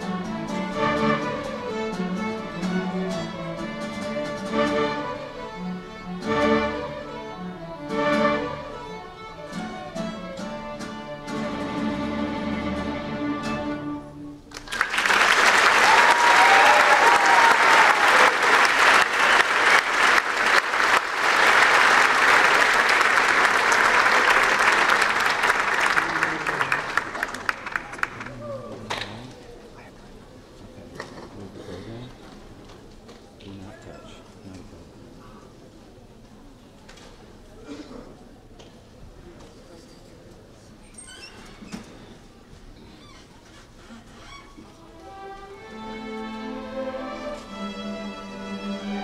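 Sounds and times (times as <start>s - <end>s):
string orchestra playing: 0.0s - 14.5s, 44.6s - 49.0s
audience applause: 14.5s - 29.3s.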